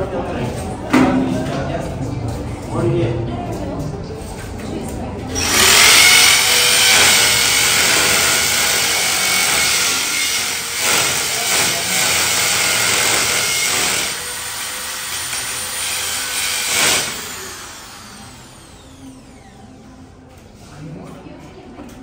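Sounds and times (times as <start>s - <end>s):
power tool running: 5.3s - 19.8s.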